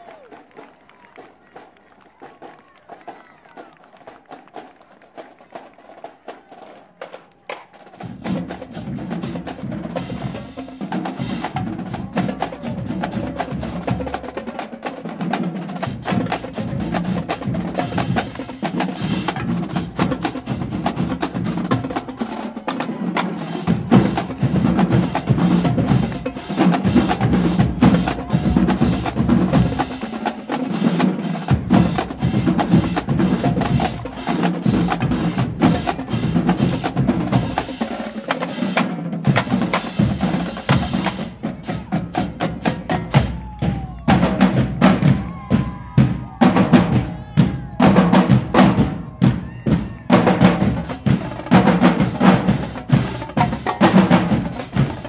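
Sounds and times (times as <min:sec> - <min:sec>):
snare drum strokes and rolls: 0:02.2 - 0:55.0
tenor and bass drums: 0:15.7 - 0:22.2, 0:23.3 - 0:55.0.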